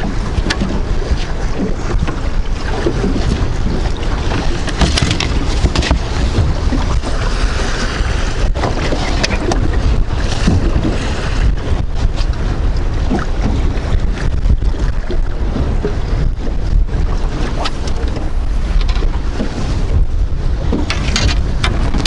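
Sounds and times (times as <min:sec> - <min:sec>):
wind buffeting microphone: 0:00.0 - 0:22.0
knocks and clicks: 0:04.3 - 0:06.8, 0:17.8 - 0:19.2, 0:20.7 - 0:22.0.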